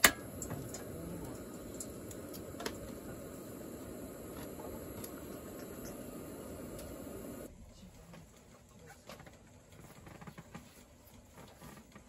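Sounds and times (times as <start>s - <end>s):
gas stove flame roaring: 0.0s - 7.5s.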